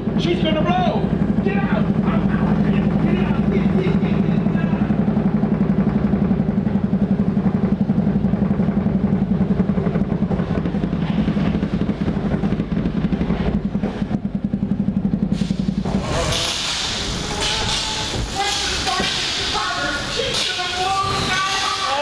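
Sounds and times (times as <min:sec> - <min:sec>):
water-ride machinery humming and rattling: 0:00.0 - 0:22.0
hiss: 0:15.3 - 0:20.6.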